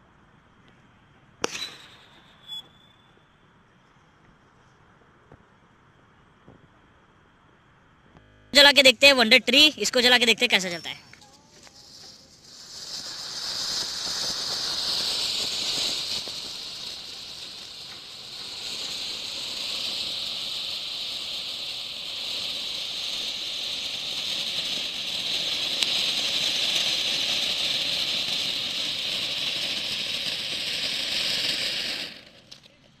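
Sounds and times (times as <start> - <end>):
ground fountain firework hissing: 8.6 - 33.0.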